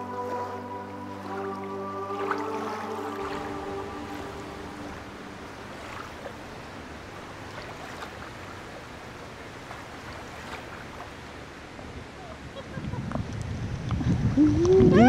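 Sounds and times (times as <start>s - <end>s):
water washing: 0.0s - 13.0s
wind: 0.0s - 15.0s.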